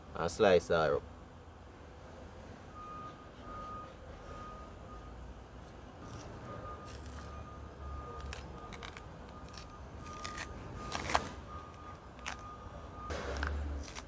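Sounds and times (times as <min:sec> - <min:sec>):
plantain skin tearing: 0:08.2 - 0:11.4, 0:12.2 - 0:12.4, 0:13.4 - 0:14.0.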